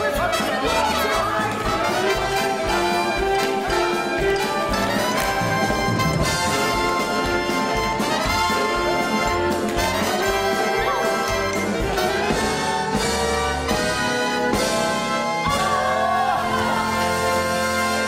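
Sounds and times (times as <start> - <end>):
upbeat orchestral music with brass: 0.0 - 18.0.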